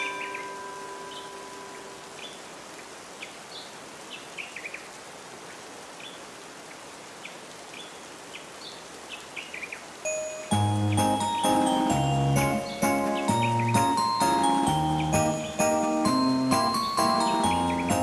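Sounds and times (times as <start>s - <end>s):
chime-like tone: 0.0s - 2.0s, 10.1s - 12.8s, 13.4s - 18.0s
steady rain-like hiss: 0.0s - 18.0s.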